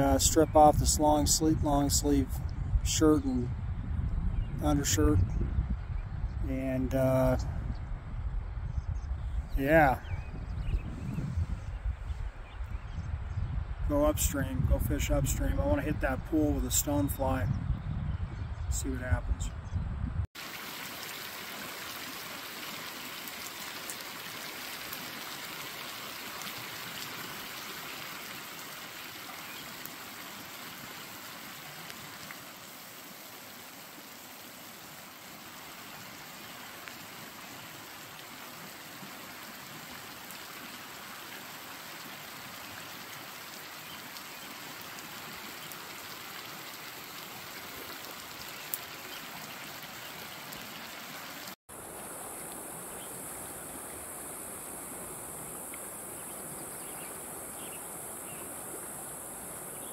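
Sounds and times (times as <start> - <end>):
rain falling on a river: 20.4 - 59.8.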